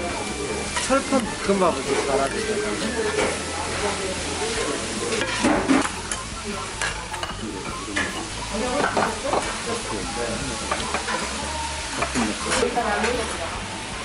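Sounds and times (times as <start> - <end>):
food sizzling on a hot pan: 0.0 - 14.0
spatula scraping a pan: 4.5 - 5.9.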